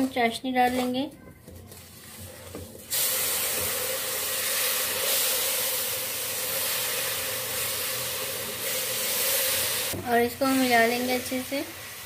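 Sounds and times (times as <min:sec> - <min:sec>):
syrup hissing in hot pan: 0:02.8 - 0:12.0.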